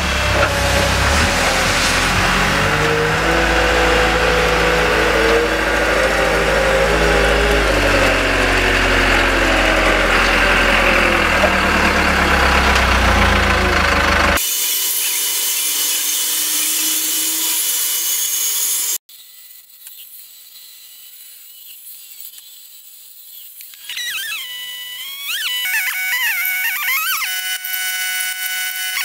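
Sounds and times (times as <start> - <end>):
engine running: 0.0 - 14.4
rain hissing: 0.0 - 14.4.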